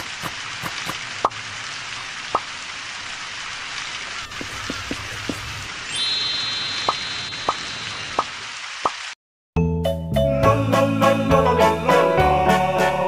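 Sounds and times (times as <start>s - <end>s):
steady rain hiss: 0.0s - 9.2s.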